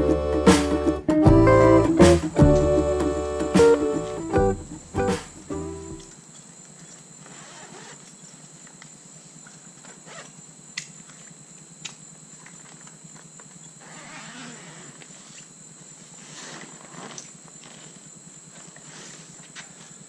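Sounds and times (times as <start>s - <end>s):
backpack rustling and scraping: 6.0s - 10.5s, 13.6s - 20.0s.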